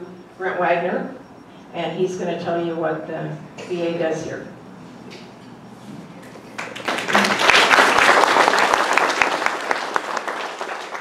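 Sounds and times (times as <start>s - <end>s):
audience applauding: 6.5s - 11.0s.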